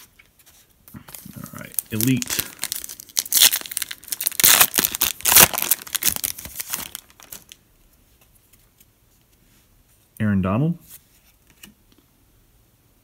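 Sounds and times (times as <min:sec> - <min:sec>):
wrapper tearing and crinkling: 0:01.1 - 0:07.6.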